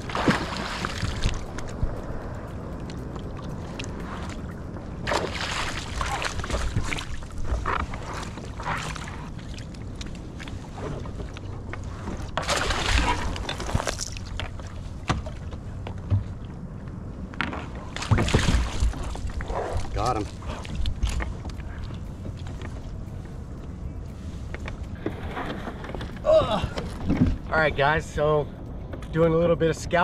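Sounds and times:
wind on microphone: 0.0 - 14.3
fish splashing in water: 5.0 - 7.4, 12.4 - 14.3.

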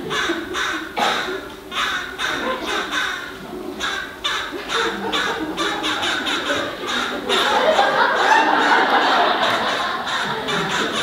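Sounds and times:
people imitating bird squawks: 0.0 - 11.0
audience laughter: 2.2 - 11.0.

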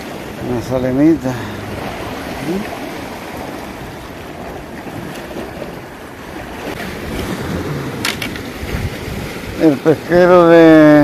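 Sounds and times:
surf on rocky shore: 0.0 - 11.0
wind buffeting microphone: 0.0 - 11.0.

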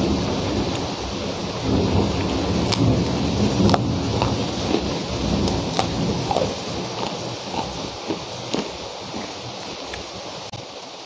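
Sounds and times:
heavy rain falling: 0.0 - 11.0
crunchy cracker being chewed: 2.2 - 10.1.

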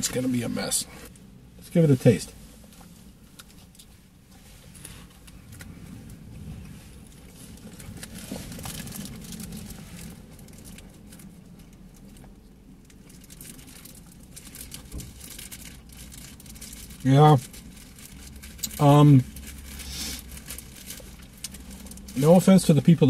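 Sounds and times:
car interior rumble: 0.0 - 23.0.

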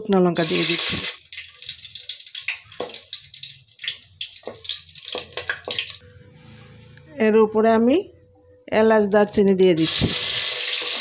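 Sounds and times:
spices sizzling in hot oil: 0.4 - 6.0, 9.8 - 11.0.

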